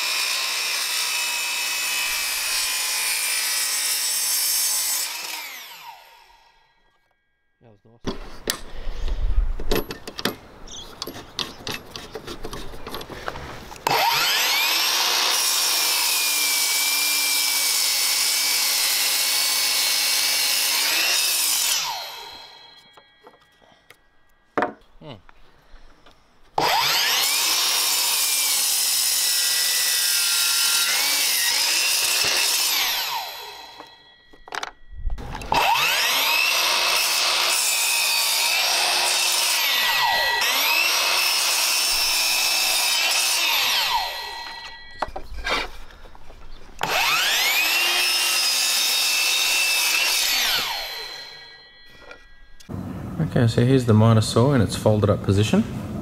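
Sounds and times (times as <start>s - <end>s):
mitre saw cutting wood: 0.0s - 6.5s, 13.8s - 23.4s, 26.6s - 34.0s, 35.4s - 46.0s, 46.8s - 52.3s.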